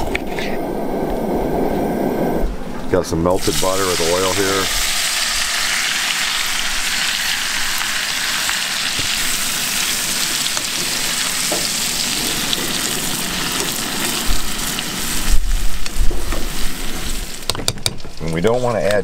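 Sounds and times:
butter and oil sizzling in pan: 0:03.4 - 0:18.3.

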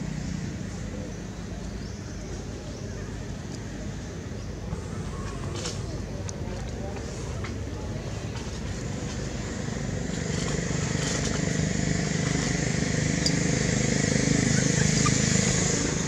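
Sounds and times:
vehicle engine running: 0:04.5 - 0:16.0.

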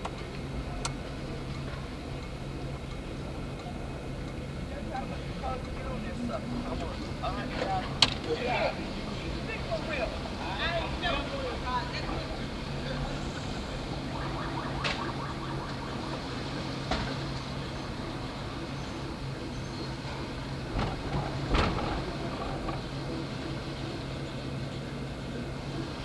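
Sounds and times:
streetcar humming: 0:00.0 - 0:26.0
wheels clacking on track: 0:16.2 - 0:26.0.

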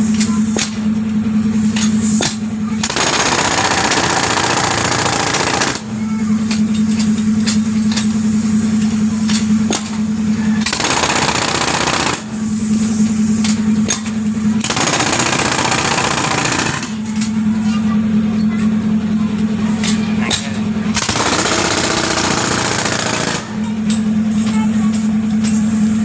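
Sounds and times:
jackhammer hammering concrete: 0:02.2 - 0:06.6, 0:10.6 - 0:12.4, 0:13.6 - 0:17.3, 0:19.8 - 0:25.0.

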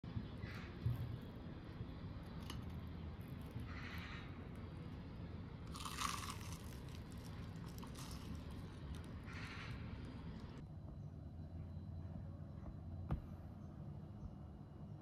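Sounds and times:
crunchy bites of fried food: 0:05.7 - 0:09.6.

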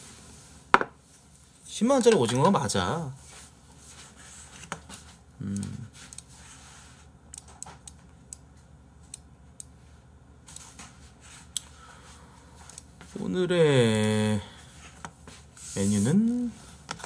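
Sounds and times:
short vocal sound: 0:05.4 - 0:06.0
small clicks and handling noises: 0:07.3 - 0:09.8, 0:12.6 - 0:12.9.

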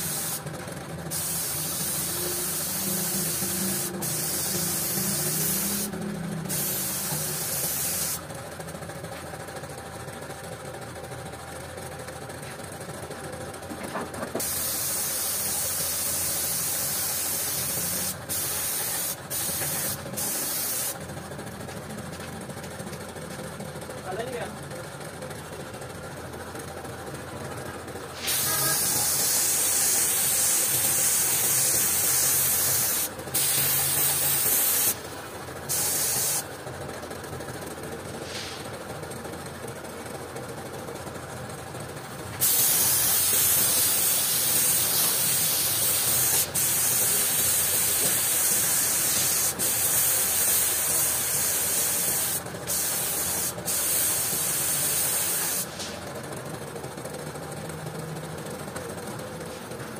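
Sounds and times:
spray gun hissing: 0:00.0 - 0:00.4, 0:01.1 - 0:05.9, 0:06.5 - 0:08.2, 0:14.4 - 0:21.0, 0:28.2 - 0:35.0, 0:35.7 - 0:36.4, 0:42.4 - 0:55.9
steady mechanical hum: 0:00.0 - 0:59.9.

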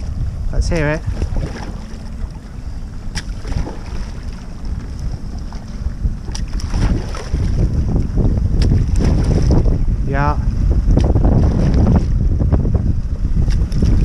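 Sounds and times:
wind buffeting microphone: 0:00.0 - 0:14.0
paddle splashing water: 0:01.0 - 0:09.8, 0:10.9 - 0:12.2, 0:13.4 - 0:14.0.

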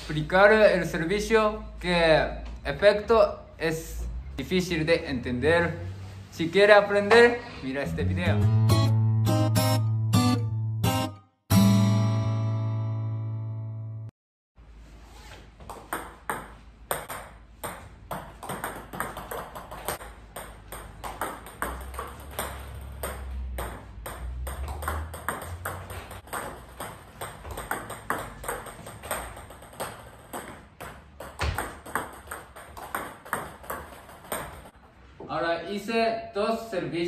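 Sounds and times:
table tennis ball clicking: 0:15.9 - 0:34.6.

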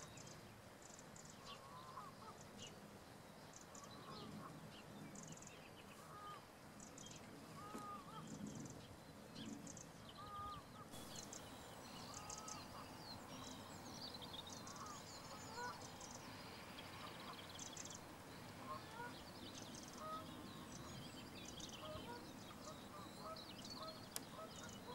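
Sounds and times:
birds twittering: 0:00.0 - 0:24.9
distant bird short call: 0:07.6 - 0:08.5, 0:10.2 - 0:13.7, 0:14.5 - 0:21.0.

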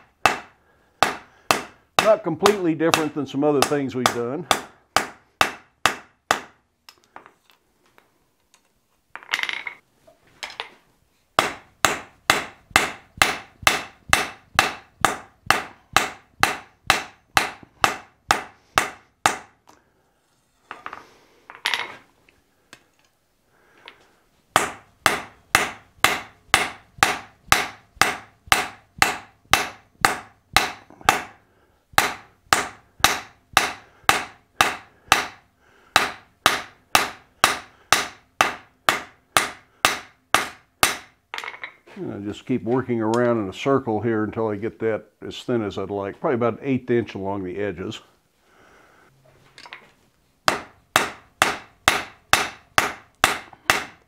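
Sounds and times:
hammer striking steel on anvil: 0:00.2 - 0:06.6, 0:11.4 - 0:19.5, 0:24.6 - 0:31.4, 0:32.0 - 0:35.4, 0:36.0 - 0:41.6, 0:50.5 - 0:54.0.

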